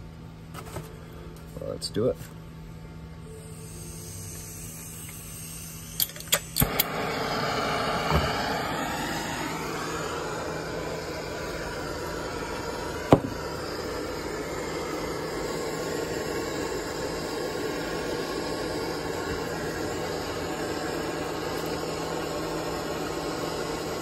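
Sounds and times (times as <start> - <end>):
torch flame hissing: 3.3 - 24.0
spark striker clicks: 4.3 - 6.9.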